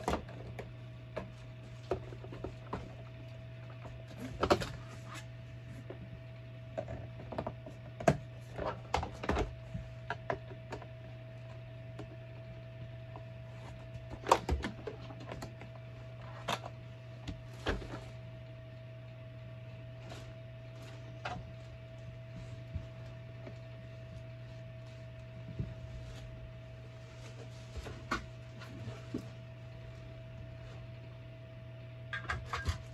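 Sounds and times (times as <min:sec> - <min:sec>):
steady low hum: 0:00.0 - 0:32.9.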